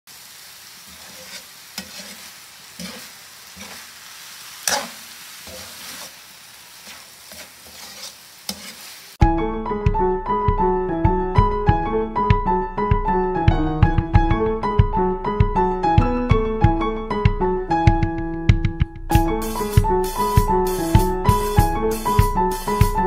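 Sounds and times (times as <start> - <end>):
food sizzling in a pan: 0.1 - 9.2, 19.1 - 23.0
metal spatula scraping a pan: 0.7 - 9.2
piano music: 9.2 - 23.0.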